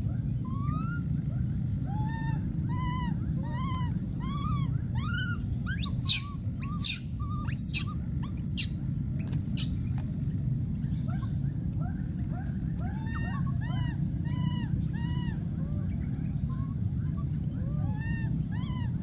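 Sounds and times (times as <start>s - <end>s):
steady low rumble: 0.0s - 19.0s
baby monkey crying: 0.4s - 1.1s, 1.9s - 8.7s, 12.3s - 19.0s.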